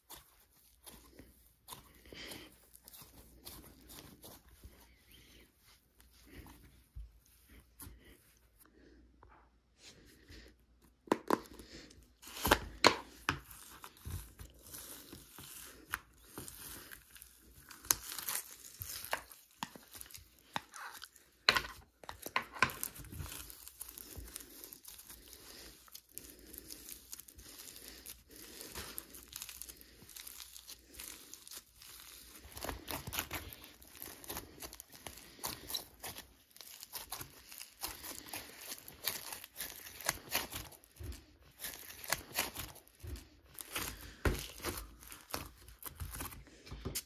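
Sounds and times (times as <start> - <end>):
slime crackling and popping: 12.2 - 46.4.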